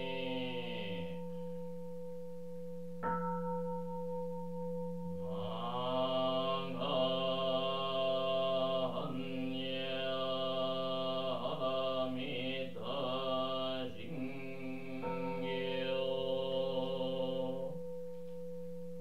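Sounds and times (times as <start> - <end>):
person chanting: 0.0 - 1.6, 5.2 - 17.9.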